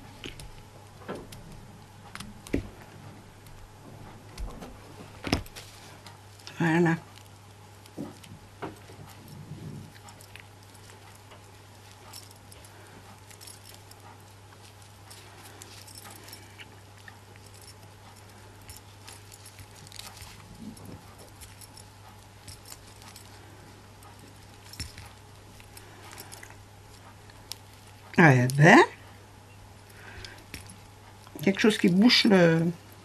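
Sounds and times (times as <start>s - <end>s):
low electrical hum: 0.0s - 33.0s
keyring jingling: 9.1s - 28.1s.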